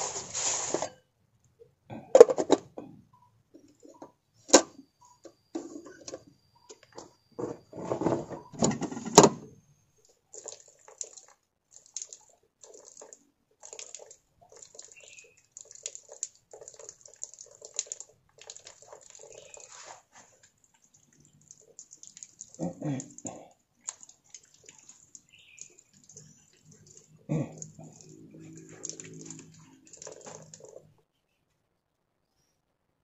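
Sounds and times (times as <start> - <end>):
metal kettle clanking: 7.4 - 9.5
water dripping to ground: 10.0 - 31.0
water splashing on face: 10.3 - 30.9.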